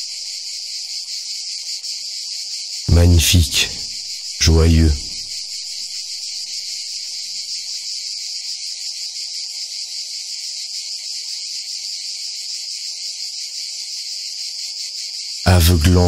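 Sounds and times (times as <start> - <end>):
insects chorus: 0.0 - 16.0.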